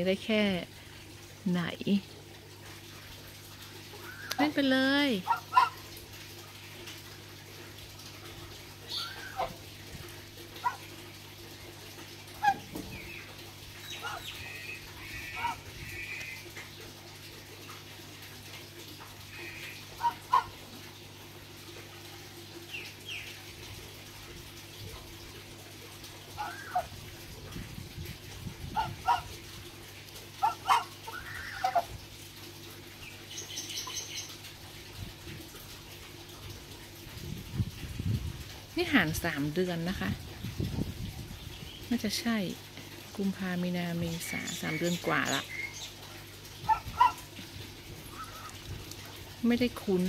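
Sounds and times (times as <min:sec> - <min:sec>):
young geese calling: 0:05.2 - 0:05.8, 0:08.9 - 0:09.6, 0:12.4 - 0:16.5, 0:19.3 - 0:20.6, 0:26.3 - 0:26.9, 0:28.8 - 0:29.4, 0:30.4 - 0:31.9, 0:46.6 - 0:47.3, 0:48.0 - 0:48.7.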